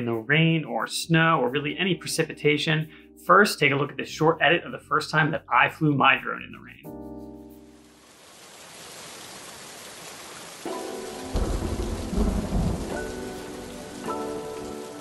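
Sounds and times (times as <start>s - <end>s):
steady rain: 7.8s - 15.0s
music chords: 10.7s - 15.0s
low rumble of thunder: 11.3s - 14.1s.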